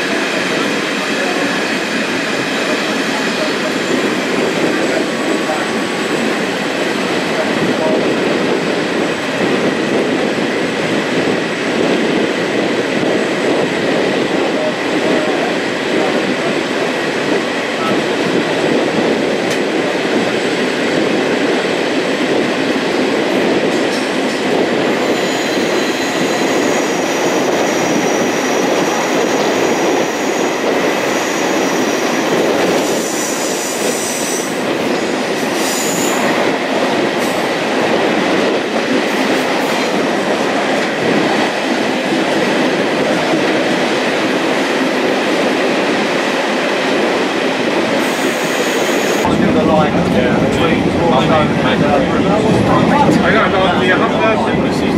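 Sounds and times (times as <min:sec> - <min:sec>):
train wheels rumbling on rail: 0:00.0 - 0:54.9
high-pitched wheel squeal: 0:25.0 - 0:28.4.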